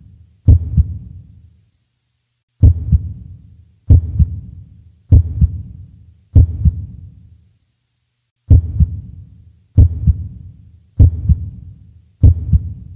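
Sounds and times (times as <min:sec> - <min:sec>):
heartbeat thumps: 0:00.5 - 0:01.1, 0:02.6 - 0:03.3, 0:03.9 - 0:05.8, 0:06.4 - 0:07.0, 0:08.5 - 0:09.1, 0:09.8 - 0:10.4, 0:11.0 - 0:11.6, 0:12.2 - 0:12.9.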